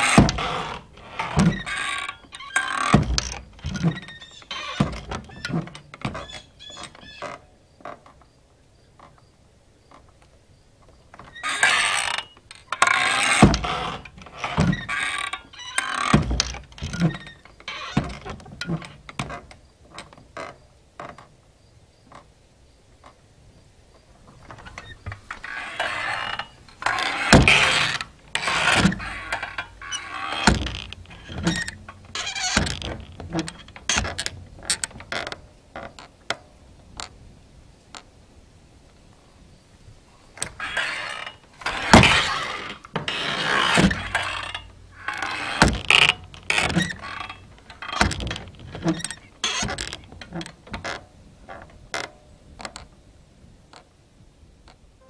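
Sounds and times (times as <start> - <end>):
saloon doors swishing creak: 0.0 - 8.1, 11.2 - 21.3, 24.3 - 36.2, 40.4 - 52.9.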